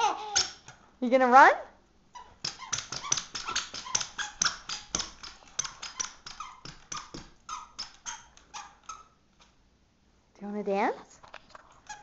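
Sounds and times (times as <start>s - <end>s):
squeaker shoes squeaking: 2.2s - 9.2s, 11.8s - 12.0s.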